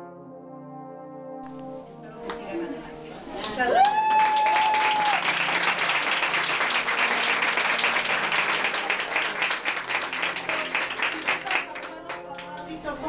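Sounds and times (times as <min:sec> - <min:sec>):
crowd applauding: 0:03.4 - 0:12.8.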